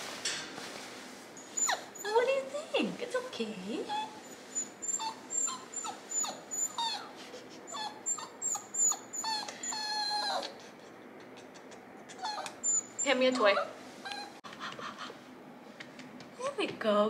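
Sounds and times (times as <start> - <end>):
puppy whimpering: 1.6 - 2.3, 3.8 - 15.2.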